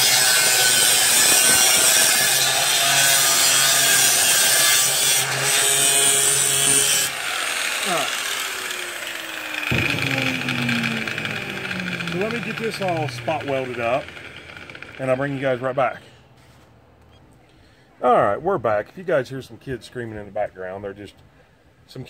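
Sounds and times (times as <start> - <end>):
angle grinder grinding steel: 0.0 - 15.9
grinder disc winding down: 6.7 - 15.7.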